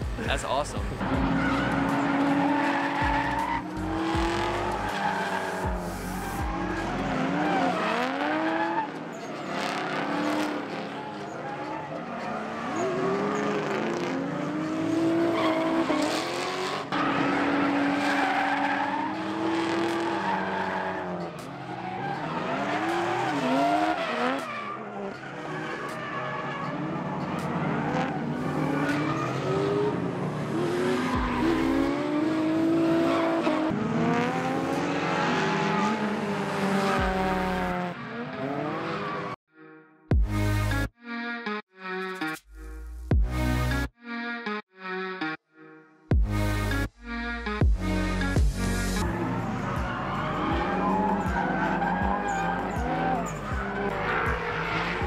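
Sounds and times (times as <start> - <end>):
car engines revving: 0.0 - 39.4, 47.5 - 55.0
tyres squealing and skidding: 0.6 - 33.8, 34.5 - 39.4, 48.7 - 55.0.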